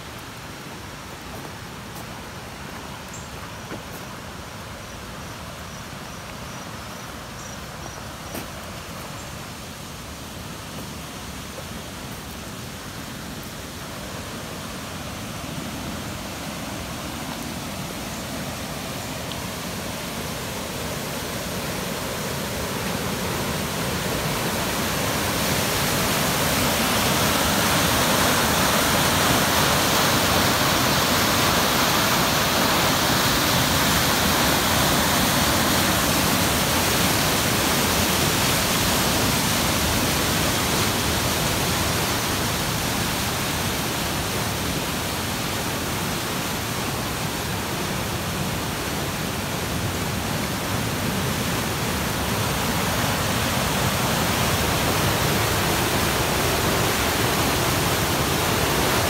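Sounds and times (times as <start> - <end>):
floodwater rushing in creek: 0.0 - 59.0.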